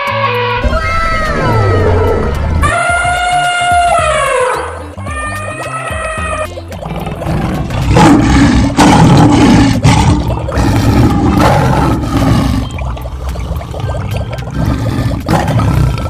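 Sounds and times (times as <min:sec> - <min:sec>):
big cat roaring: 0:07.0 - 0:12.7, 0:14.5 - 0:16.0.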